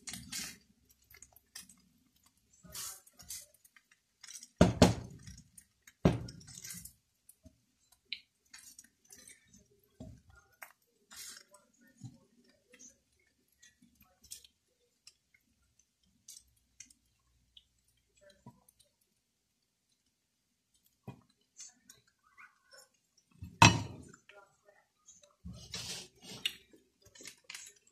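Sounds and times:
spatula scraping a wok: 25.5 - 26.4.

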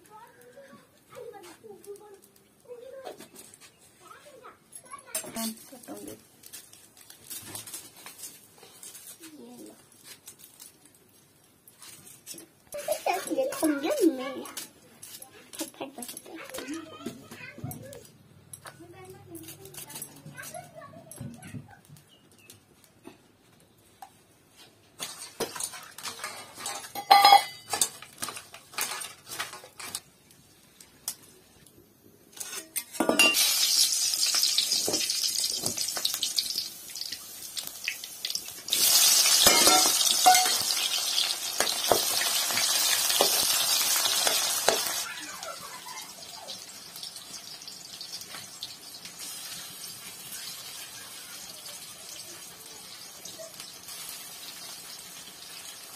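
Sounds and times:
food sizzling in hot oil: 25.0 - 30.0, 32.4 - 55.9
metal pots and utensils clinking: 25.0 - 30.0, 32.4 - 37.7, 38.4 - 45.0.

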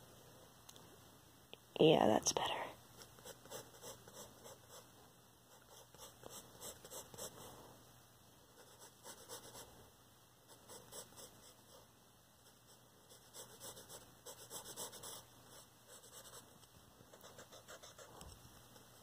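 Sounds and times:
pencil sketching on paper: 3.0 - 4.9, 5.5 - 7.5, 8.6 - 9.7, 10.5 - 16.4, 17.1 - 18.2.

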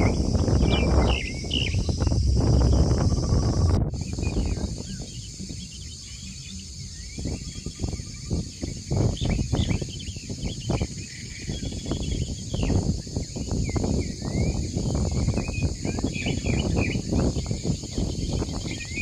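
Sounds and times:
low rumble: 0.0 - 8.1
high insect drone: 0.0 - 19.0
small birds chirping: 0.0 - 19.0.

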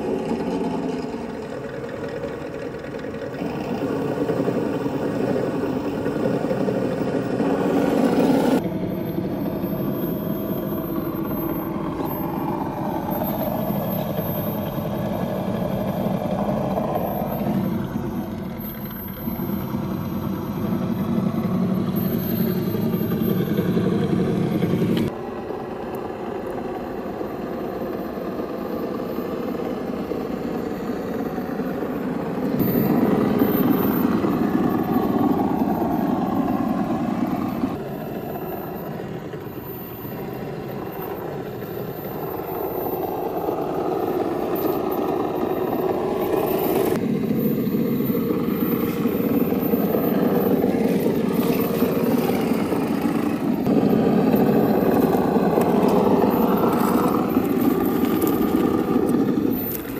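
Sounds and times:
toy car electric motor whining: 41.2 - 59.9.

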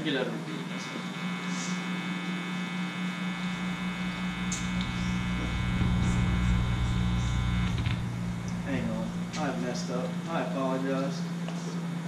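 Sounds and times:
electrical hum and buzz: 0.0 - 12.0
low rumble: 3.3 - 10.7.

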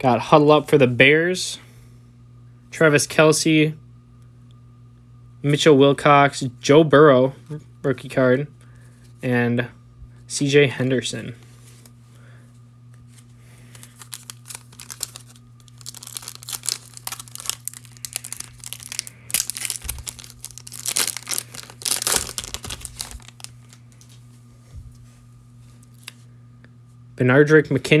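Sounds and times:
foil wrapper tearing and crinkling: 13.6 - 24.1, 25.8 - 26.2.

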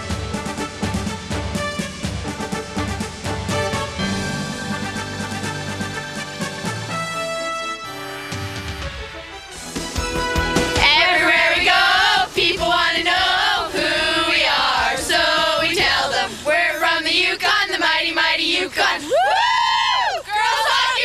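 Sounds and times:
girls singing in unison: 10.8 - 21.0
high whoop: 19.0 - 20.7.

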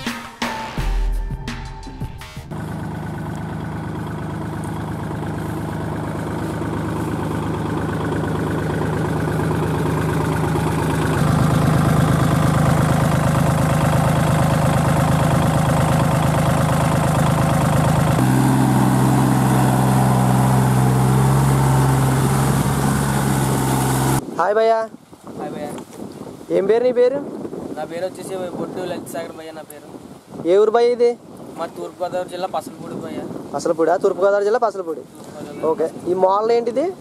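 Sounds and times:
tractor diesel engine under load: 2.5 - 24.2.

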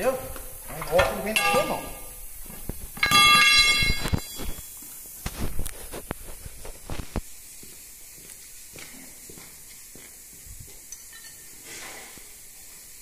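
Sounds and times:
steel tool ringing on wheel rim: 1.3 - 2.2, 3.0 - 4.7.

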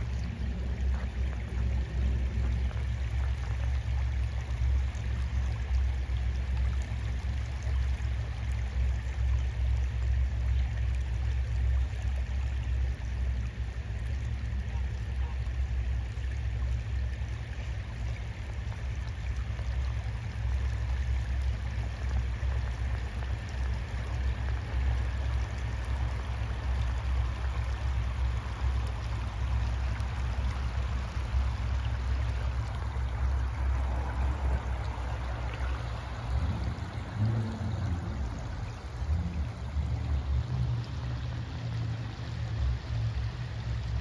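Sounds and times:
steady low rumble: 0.0 - 44.0
water trickling: 0.0 - 44.0.

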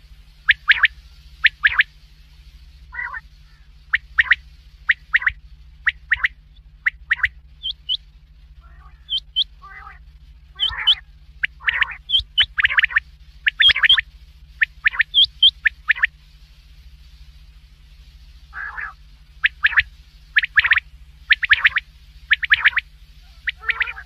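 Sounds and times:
steady low hum: 0.0 - 24.0
quail whistled calls: 0.4 - 2.0, 2.9 - 8.0, 8.6 - 16.2, 18.5 - 24.0
raspy bird calls: 0.4 - 17.2, 18.3 - 24.0.

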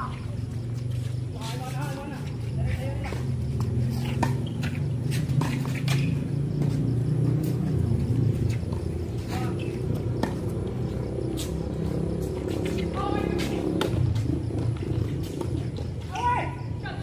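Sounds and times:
tennis ball bouncing and struck: 3.6 - 11.5, 12.4 - 16.3.

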